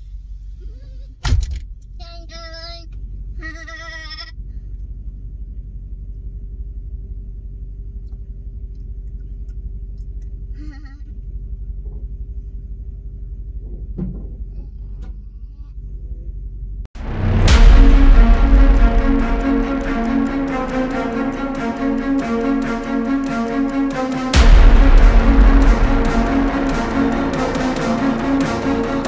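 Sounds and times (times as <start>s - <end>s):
low rumble inside vehicle: 0.0s - 16.9s
small child's bleat-like calls: 3.6s - 4.4s
sharp knock: 17.0s - 29.0s.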